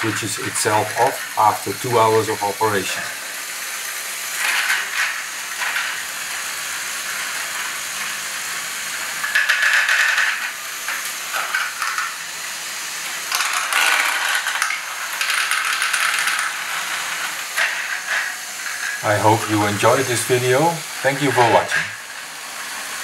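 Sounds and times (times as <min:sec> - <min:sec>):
plastic gears whirring and ratcheting: 0:04.2 - 0:23.0
plastic balls rattling: 0:09.2 - 0:12.4, 0:13.0 - 0:20.2.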